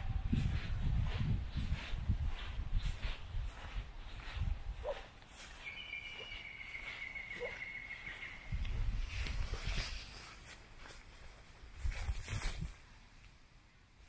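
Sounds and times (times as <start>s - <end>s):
footsteps on grass: 0.0s - 12.9s
thin high whistling tone: 5.6s - 8.5s.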